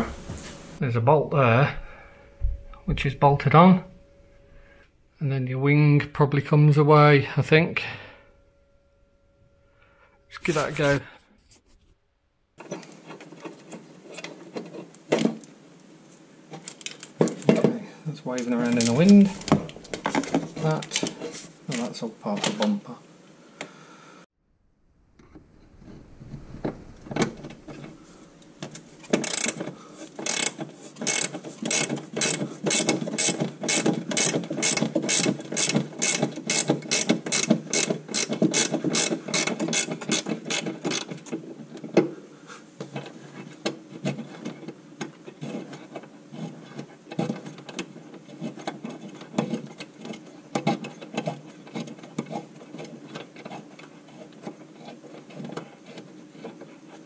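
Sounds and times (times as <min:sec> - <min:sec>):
hand ratchet clicking: 0:29.1 - 0:41.1.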